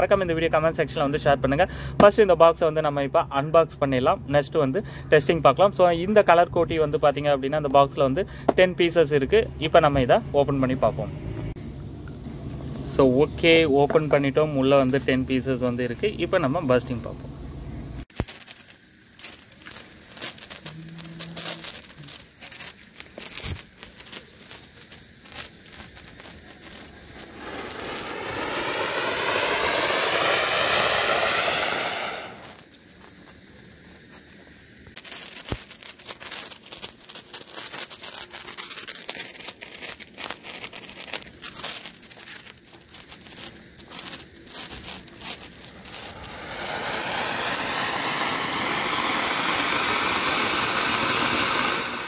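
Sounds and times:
fireworks sputtering and crackling: 18.0s - 52.0s
loud rushing hiss of sparks: 18.0s - 52.0s.

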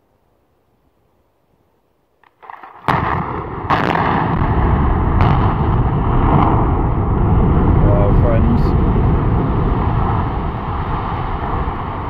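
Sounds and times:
explosive cracks: 2.2s - 12.0s
explosive blast: 2.4s - 12.0s.

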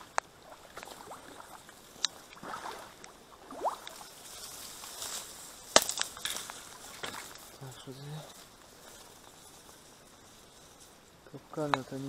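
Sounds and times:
reed stems rustling: 0.0s - 12.0s
stem snapping: 2.0s - 2.2s, 5.7s - 7.5s.

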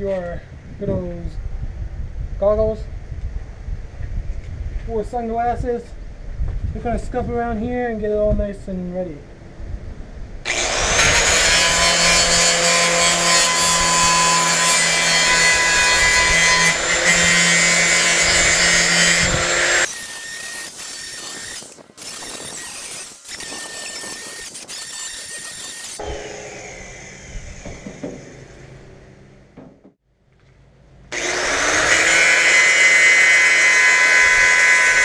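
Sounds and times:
angle grinder on metal: 10.5s - 28.5s, 31.1s - 35.0s.

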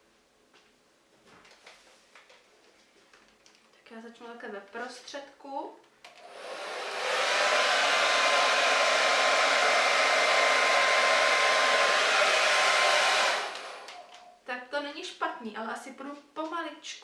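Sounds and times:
hair dryer blowing: 6.1s - 14.2s.

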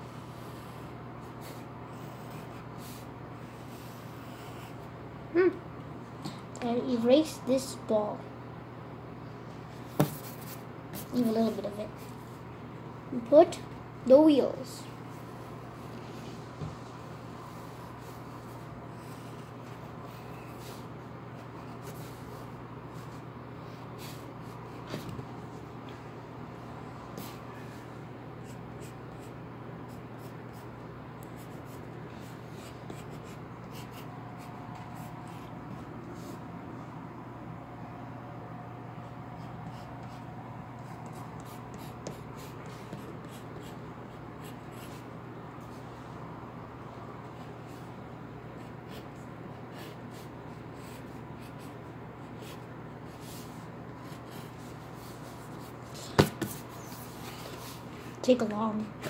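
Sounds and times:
steady low hum: 0.0s - 59.0s
pencil scratching on paper: 0.3s - 4.9s, 28.4s - 36.4s, 39.3s - 45.1s, 48.5s - 57.8s.

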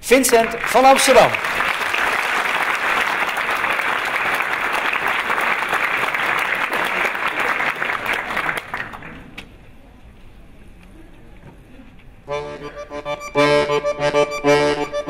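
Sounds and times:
audience applauding: 0.1s - 9.3s.

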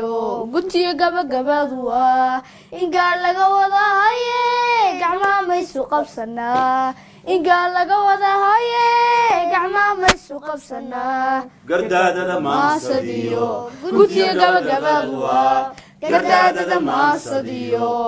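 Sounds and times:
girl singing unaccompanied: 0.0s - 11.7s, 12.5s - 18.0s
sharp click: 10.0s - 10.3s
lower voices singing together: 10.5s - 18.0s.

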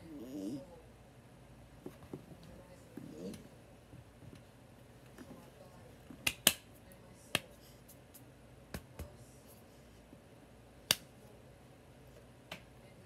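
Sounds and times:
hands slapping and clapping: 6.2s - 6.7s, 7.4s - 9.1s, 10.9s - 11.1s.

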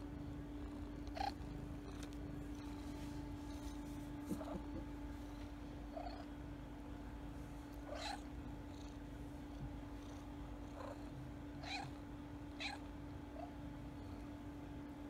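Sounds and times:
kittens mewing: 4.2s - 5.0s, 7.8s - 8.3s, 11.6s - 12.0s.

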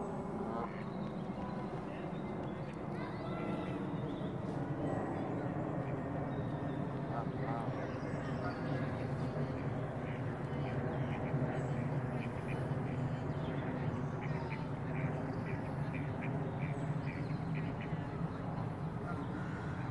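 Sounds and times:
ducks quacking: 14.2s - 18.0s.

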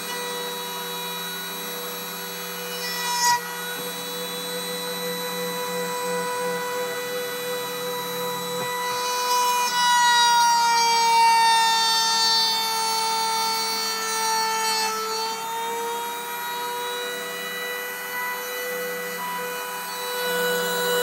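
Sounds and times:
rotary tool spindle whining: 0.0s - 21.0s.

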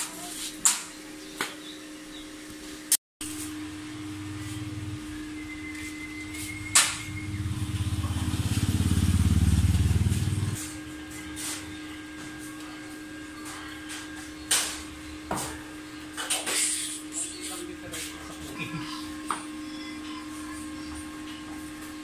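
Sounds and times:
vehicle engine pulsing drone: 3.6s - 11.2s.

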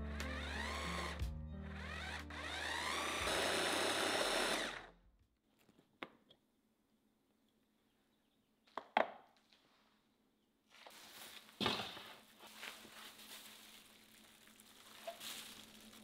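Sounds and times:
hand blender whirring: 0.0s - 4.9s.

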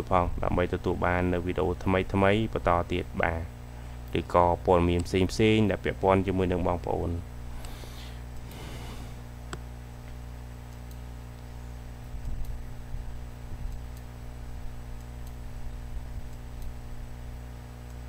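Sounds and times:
steady low hum: 0.0s - 18.0s
computer mouse clicking: 10.7s - 11.0s.

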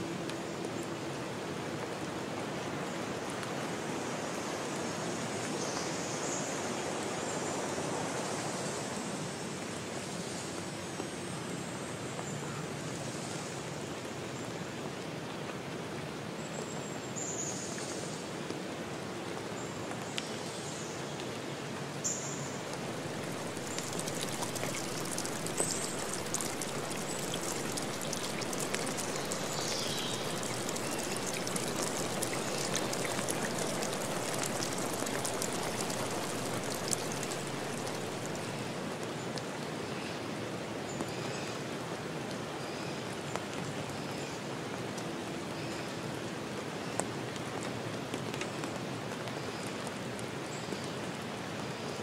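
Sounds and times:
water splashing and trickling: 22.4s - 39.6s.

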